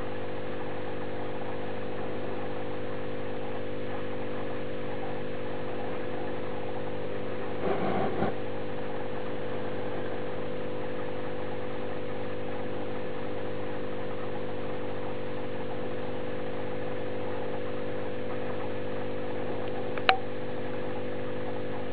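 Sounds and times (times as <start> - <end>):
steady electrical hum: 0.0 - 21.9
sharp click: 20.0 - 20.2.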